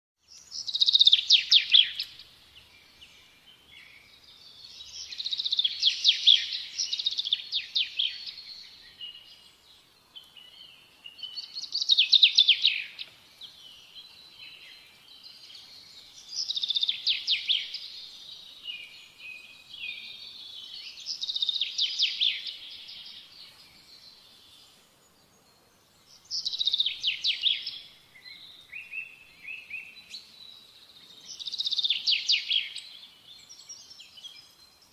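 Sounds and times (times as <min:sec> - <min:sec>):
songbird trilling: 0:00.4 - 0:02.4, 0:04.8 - 0:09.3, 0:10.4 - 0:13.8, 0:16.2 - 0:18.0, 0:18.6 - 0:23.3, 0:26.2 - 0:30.4, 0:31.3 - 0:34.5.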